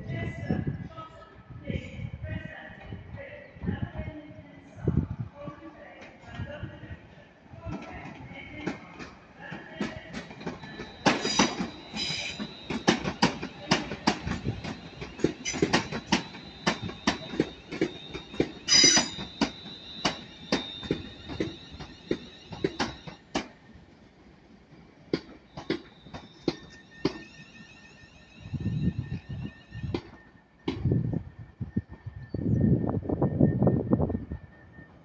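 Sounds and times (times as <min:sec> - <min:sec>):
train wheels clicking over rail joints: 0:09.8 - 0:23.6, 0:25.0 - 0:27.4.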